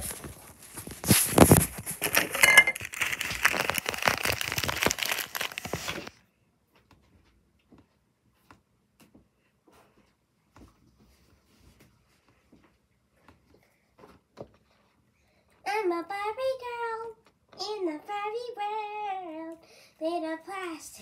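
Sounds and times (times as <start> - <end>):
phone handling crackle: 1.0 - 6.1.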